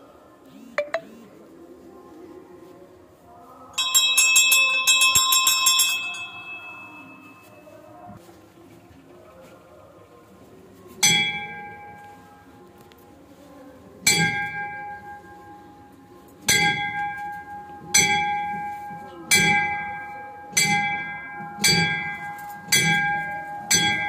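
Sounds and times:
temple bell ringing: 3.8s - 7.8s, 11.0s - 12.0s, 14.1s - 15.7s, 16.4s - 24.0s.

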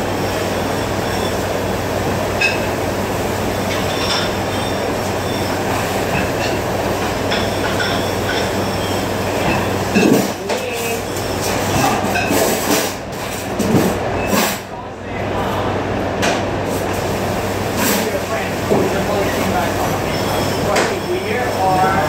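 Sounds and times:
dishes clinking: 7.3s - 8.6s.

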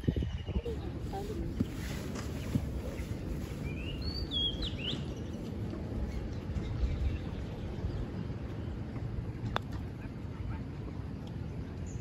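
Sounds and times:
wind rumble on microphone: 0.0s - 12.0s
bird chirping: 3.6s - 5.5s.

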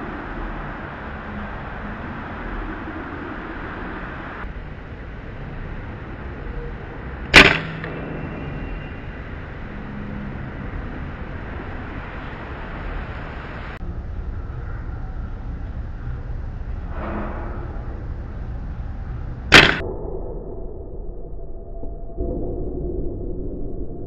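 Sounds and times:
steady background hiss: 0.0s - 19.8s
air rifle shot crack: 7.3s - 8.2s, 19.5s - 19.8s.

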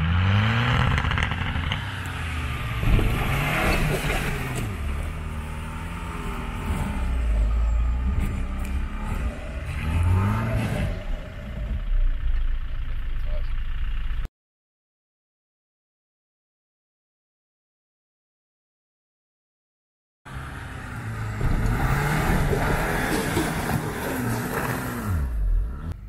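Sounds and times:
off-road vehicle engine revving: 0.0s - 14.3s, 20.3s - 26.0s.

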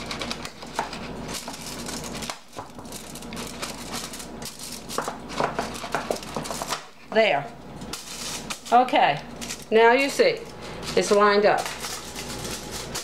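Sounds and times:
aluminum foil crinkling: 0.0s - 7.1s, 7.8s - 13.0s.

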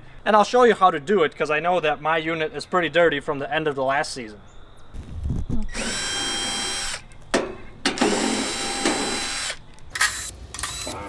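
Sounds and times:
cordless drill motor whine: 5.6s - 7.0s, 8.0s - 11.0s.

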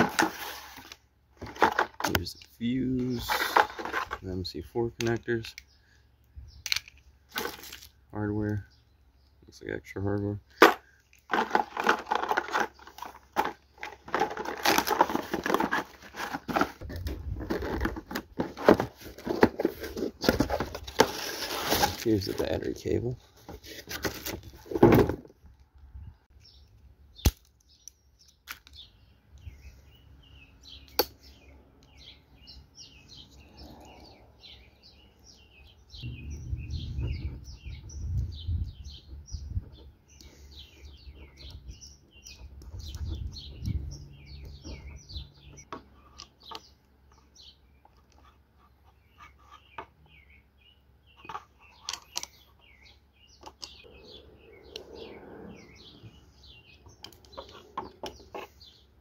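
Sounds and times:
clicks and knocks handling boxes: 0.0s - 4.4s, 10.2s - 22.5s, 23.3s - 25.6s
small birds chirping: 0.0s - 59.0s
low rumble: 36.0s - 38.8s, 53.9s - 56.8s.

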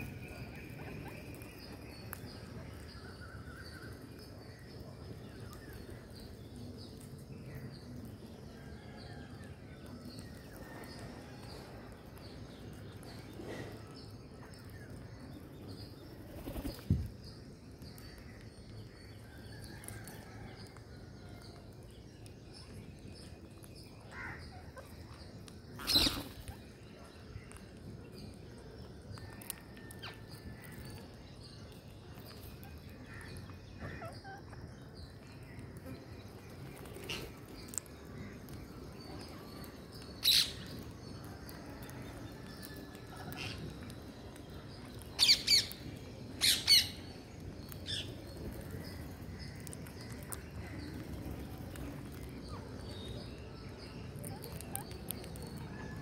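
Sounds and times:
birds flapping wings: 16.3s - 16.8s
faint bird chirps: 22.6s - 35.7s.

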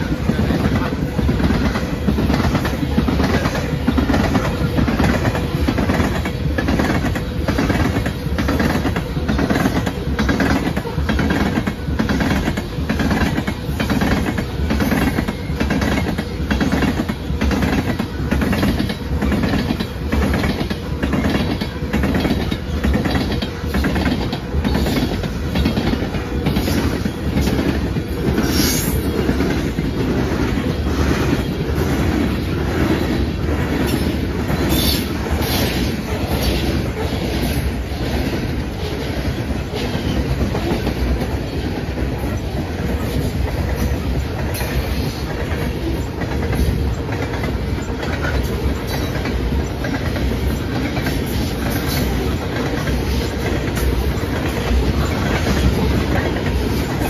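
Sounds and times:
low train rumble: 0.0s - 57.0s
train wheels clacking: 0.0s - 57.0s.

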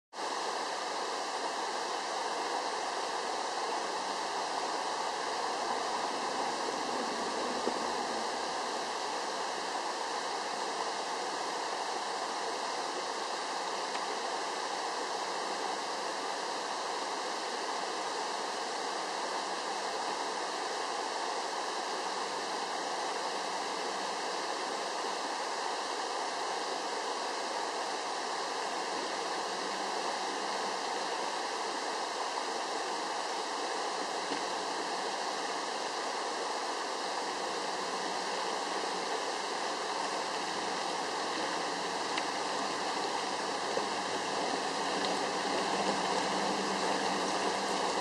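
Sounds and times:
creek water running over rocks: 0.2s - 48.0s.

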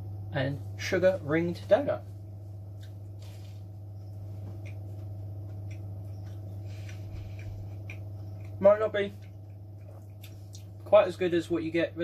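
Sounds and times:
low hum: 0.0s - 12.0s
chewing: 2.7s - 10.9s.

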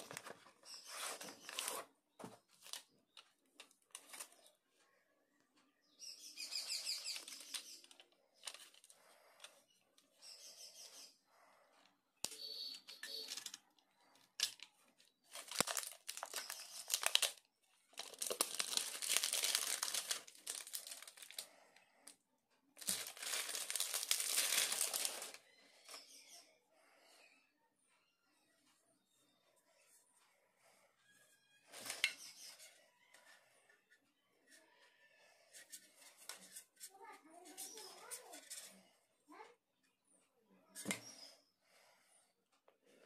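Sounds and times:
plastic shrink wrap crinkling: 15.3s - 21.5s, 22.8s - 25.4s.

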